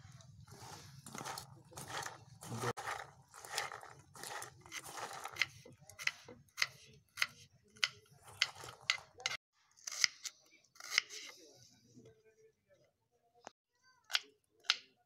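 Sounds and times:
hand mixing food in bowl: 0:00.0 - 0:09.4.

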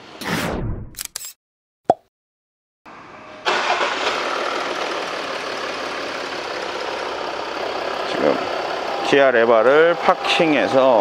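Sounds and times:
diesel engine starting and idling: 0:02.9 - 0:11.0.

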